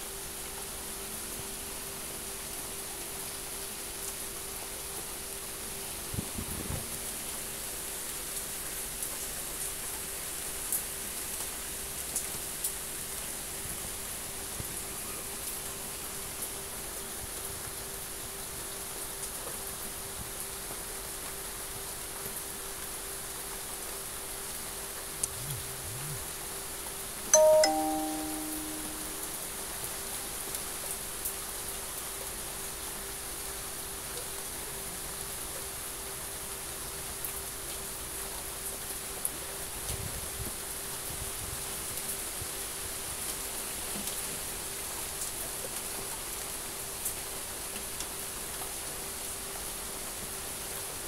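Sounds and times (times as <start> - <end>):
rain hiss: 0.0 - 51.0
faint steady hum: 24.4 - 29.8
two-note ding-dong chime: 27.4 - 29.4.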